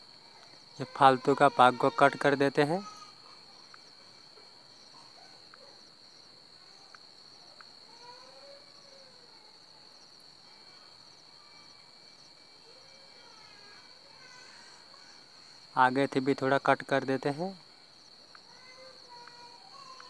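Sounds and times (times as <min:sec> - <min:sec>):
high-pitched insect chirring: 0:00.0 - 0:20.0
soft ticks: 0:03.7 - 0:03.9, 0:18.2 - 0:18.5, 0:19.1 - 0:20.0.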